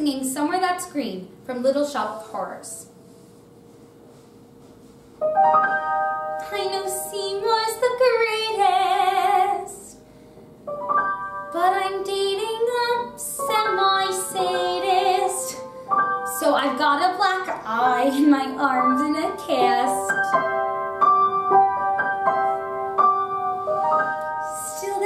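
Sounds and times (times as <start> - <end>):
piano accompaniment: 4.6 - 9.8, 10.4 - 25.0
woman singing with vibrato: 6.4 - 9.9, 11.5 - 15.7, 16.3 - 20.4, 24.4 - 25.0.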